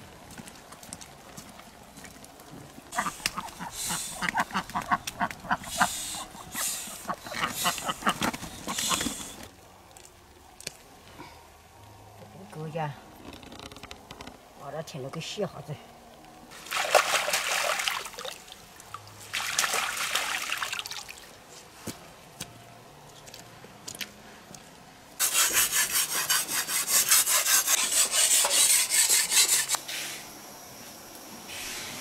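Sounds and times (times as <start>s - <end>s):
running water splashing: 16.5s - 21.4s.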